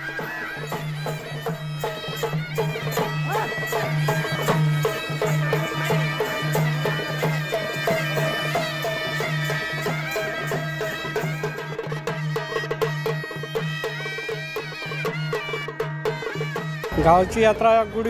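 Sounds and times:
drums beaten in quick rhythm: 15.8s - 18.0s
reedy melody: 16.8s - 18.0s.

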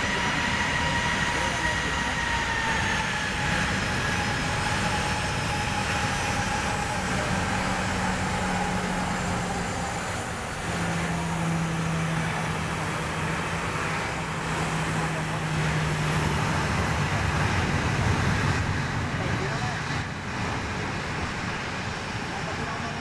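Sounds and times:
jet engines running: 0.0s - 23.0s.

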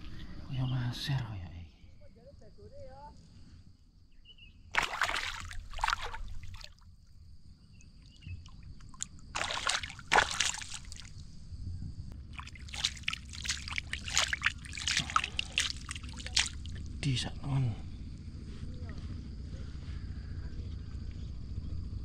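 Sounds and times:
fish splashing in water: 4.8s - 6.8s, 8.4s - 11.2s, 12.3s - 17.0s.

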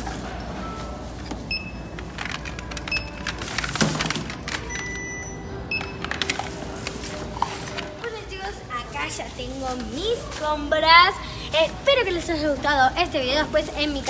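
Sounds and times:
packages clattering on counter: 0.1s - 5.0s
barcode scanner beeping: 0.7s - 3.6s, 4.6s - 6.2s.

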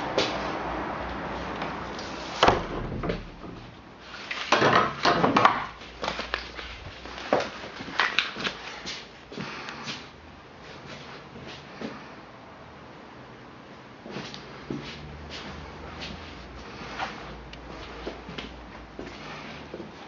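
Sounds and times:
irregular knocks and thumps: 2.4s - 3.8s.

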